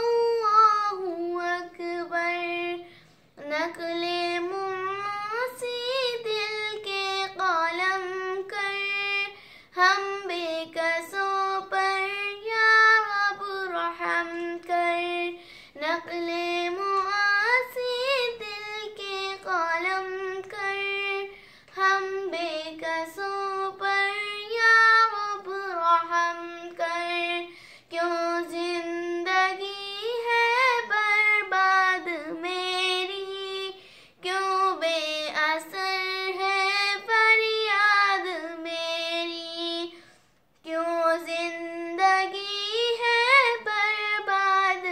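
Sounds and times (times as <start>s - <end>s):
girl singing unaccompanied: 0.0s - 44.9s.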